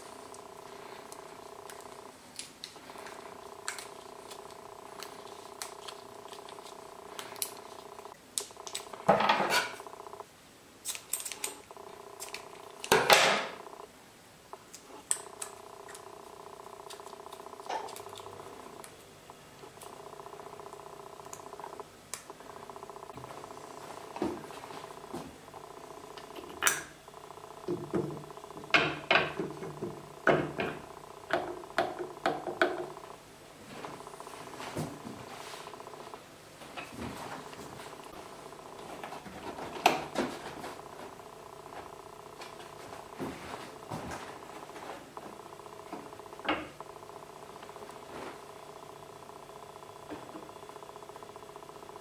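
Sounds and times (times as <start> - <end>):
steady hum: 0.0 - 52.0.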